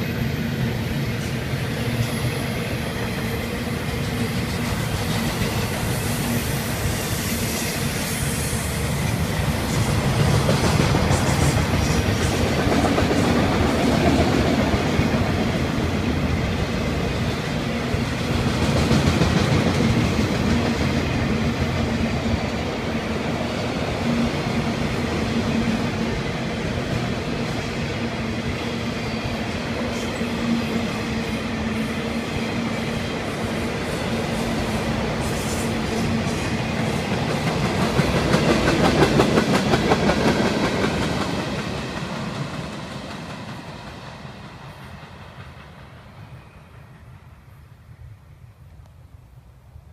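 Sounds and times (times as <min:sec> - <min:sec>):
train wheels clicking over rail joints: 0:01.2 - 0:21.8, 0:34.2 - 0:46.5.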